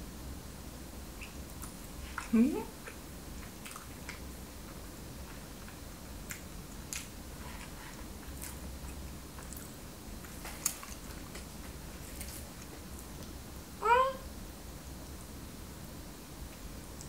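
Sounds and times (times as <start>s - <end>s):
person chewing: 1.3s - 13.1s.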